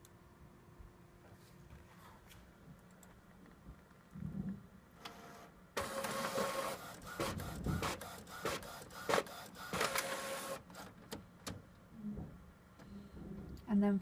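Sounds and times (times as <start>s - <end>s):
printer whirring and humming: 5.0s - 11.0s
sharp printer clicks: 5.8s - 11.6s.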